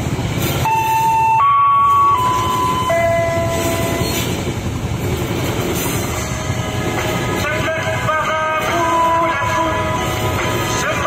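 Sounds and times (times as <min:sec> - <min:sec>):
train wheels clattering on rail: 0:00.0 - 0:11.0.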